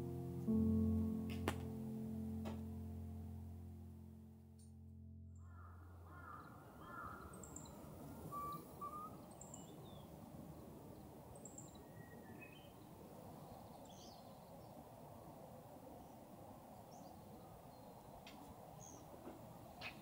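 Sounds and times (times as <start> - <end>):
outdoor background hiss: 0.0 - 20.0
lower bird calls: 5.4 - 10.1
birds chirping: 5.4 - 12.9.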